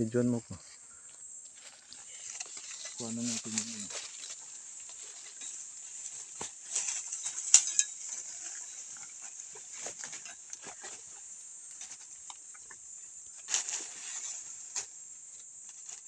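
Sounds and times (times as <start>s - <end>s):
high-pitched hiss: 0.0s - 16.0s
dry leaves rustling and crackling: 1.6s - 12.4s, 13.4s - 15.0s, 15.6s - 16.0s.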